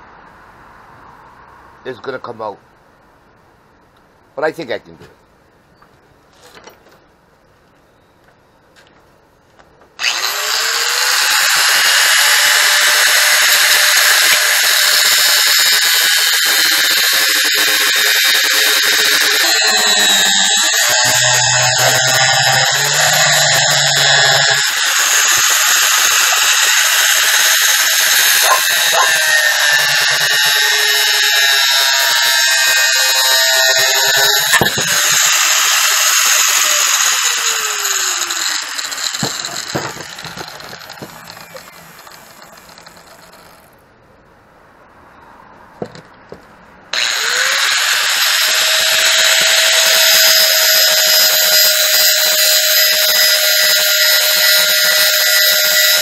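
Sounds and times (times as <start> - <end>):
angle grinder grinding metal: 10.0 - 43.7, 47.0 - 56.0.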